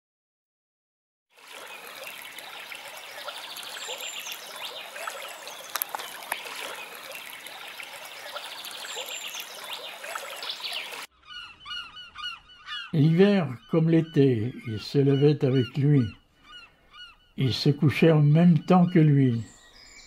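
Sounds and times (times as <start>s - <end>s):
water trickling: 1.3s - 11.1s.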